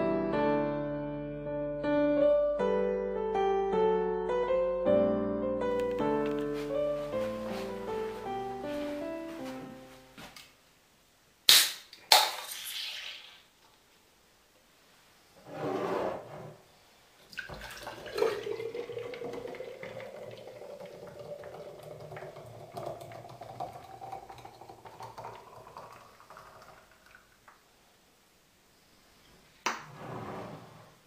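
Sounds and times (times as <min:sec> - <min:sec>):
beer pouring into a glass: 0:17.3 - 0:27.6.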